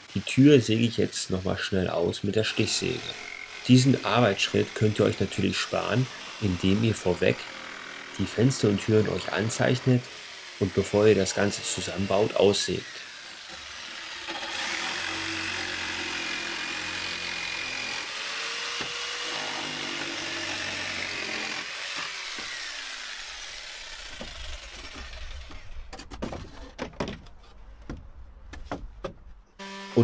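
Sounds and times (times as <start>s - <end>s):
jigsaw cutting wood: 0.0s - 26.7s, 29.6s - 30.0s
wooden boards knocking and clattering: 25.4s - 29.4s.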